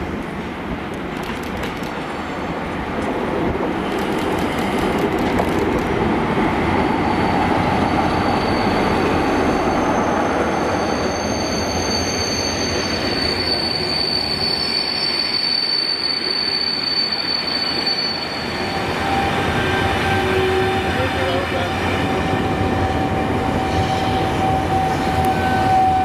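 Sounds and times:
diesel train passing: 0.0s - 26.0s
high-pitched wheel squeal: 6.9s - 26.0s.

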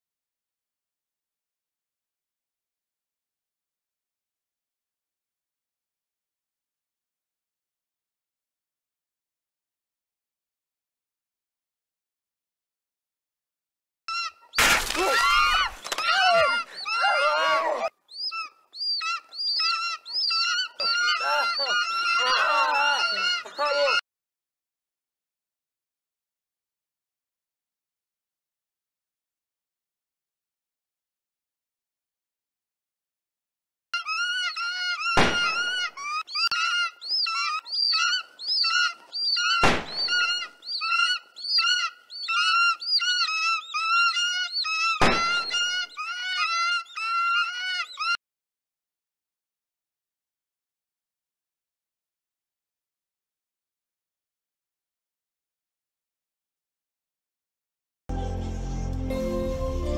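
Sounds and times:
people screaming and moaning: 15.0s - 17.9s, 20.8s - 24.0s
shrill bird screeches: 15.1s - 24.0s, 34.0s - 48.2s
gunshots: 35.2s - 35.8s, 39.6s - 40.3s, 45.0s - 45.6s.

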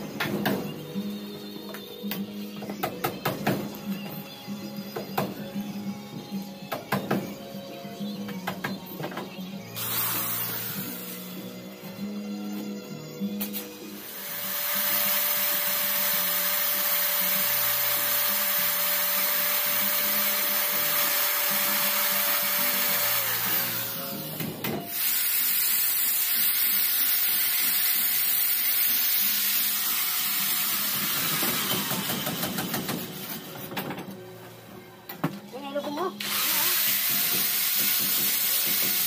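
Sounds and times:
electric drill whining: 9.8s - 11.4s, 13.8s - 32.7s, 36.2s - 39.0s.

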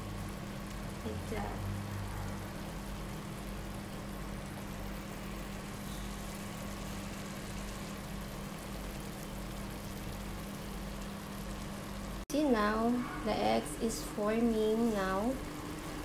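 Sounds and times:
sauce simmering hiss: 0.0s - 16.0s.

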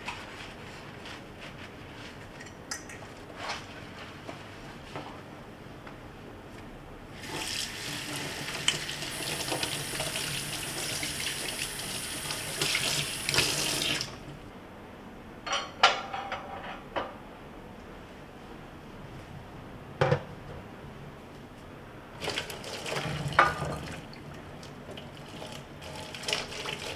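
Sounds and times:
tap water running into sink: 7.2s - 14.2s, 22.2s - 26.9s.

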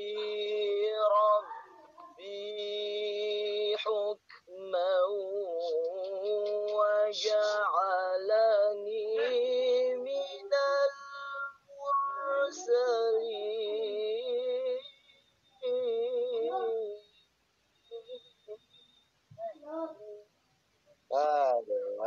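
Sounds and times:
woman singing: 0.0s - 14.9s, 15.6s - 17.1s.

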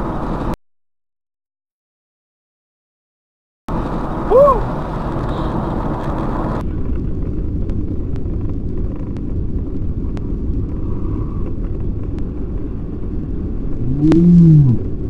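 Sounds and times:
tyres and engine rumble: 0.0s - 0.6s, 3.7s - 15.0s.

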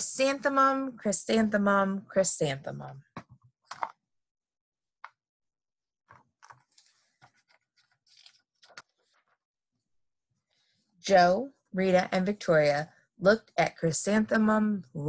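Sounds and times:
book pages turning: 3.7s - 4.0s, 6.1s - 9.4s
paper rustling: 3.7s - 4.0s, 6.1s - 9.4s.

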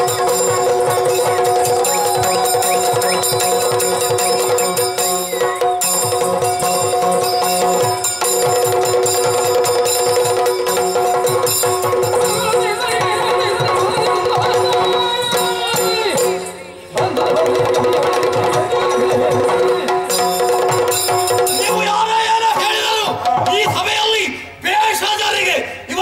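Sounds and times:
wavering melodic line: 0.0s - 16.7s
fast drum rhythm: 0.0s - 24.1s.

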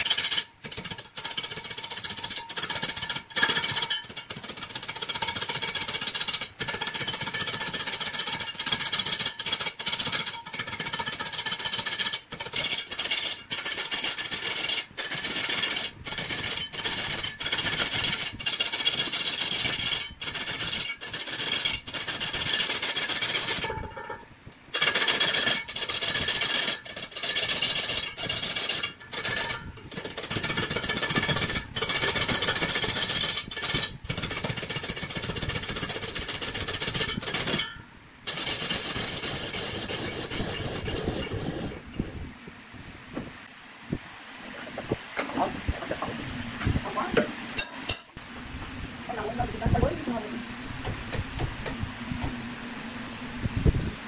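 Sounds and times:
tool scraping spinning wood: 0.0s - 42.2s.

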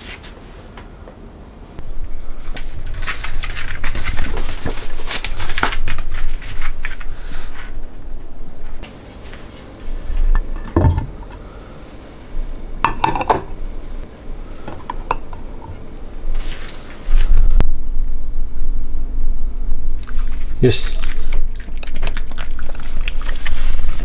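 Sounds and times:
metal bowl clinking and knocking: 12.8s - 13.6s, 14.8s - 15.4s.

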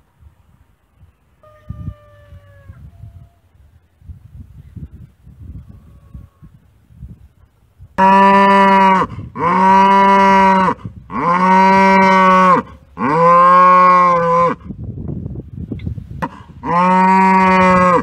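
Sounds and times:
cow bellowing: 8.0s - 14.7s, 16.2s - 18.0s.

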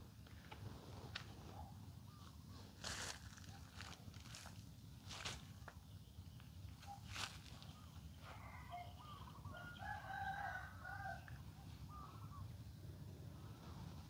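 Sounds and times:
faint crowing bird call: 6.8s - 14.0s.

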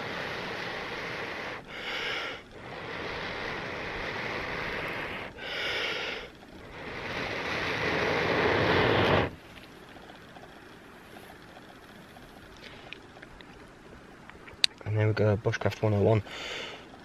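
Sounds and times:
person blowing long breaths: 0.0s - 9.4s, 16.3s - 16.9s
sharp breath drawn in: 0.0s - 9.4s.

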